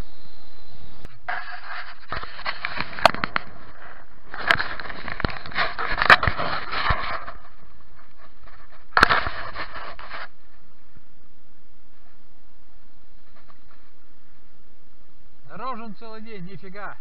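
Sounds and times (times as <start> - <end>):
sharp clicks and knocks: 2.1 - 3.6.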